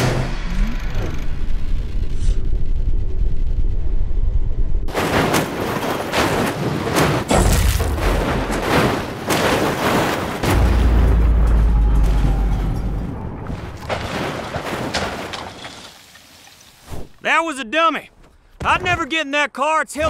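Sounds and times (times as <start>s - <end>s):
deep low boom: 0.0s - 4.9s
low rumble: 0.0s - 4.9s, 10.4s - 13.9s
metal crashing on rock: 4.9s - 16.6s.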